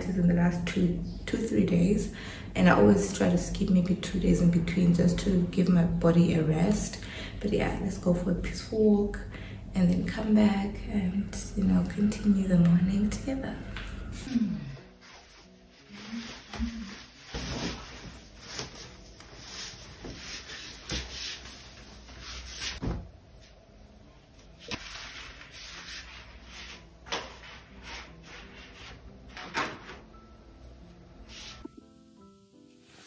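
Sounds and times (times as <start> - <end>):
clothing rustling: 14.8 - 23.6.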